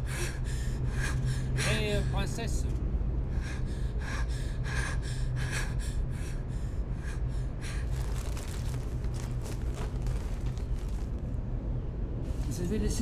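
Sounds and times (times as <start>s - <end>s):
person breathing hard: 0.0s - 1.8s, 3.2s - 10.7s
steady low hum: 0.0s - 13.0s.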